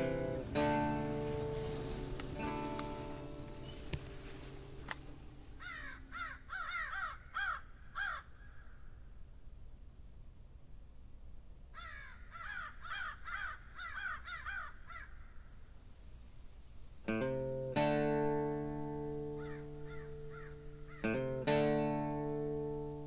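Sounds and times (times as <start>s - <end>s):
crow cawing: 5.5s - 9.0s, 11.8s - 15.5s, 19.2s - 21.2s.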